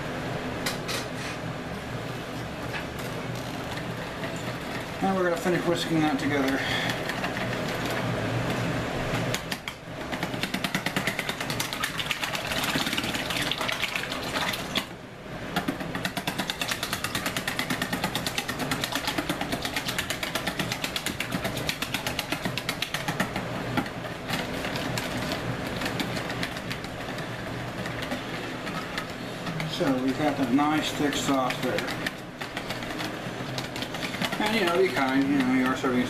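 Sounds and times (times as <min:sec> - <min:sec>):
whisk clattering in plastic bowl: 0:10.1 - 0:14.6, 0:15.6 - 0:36.0.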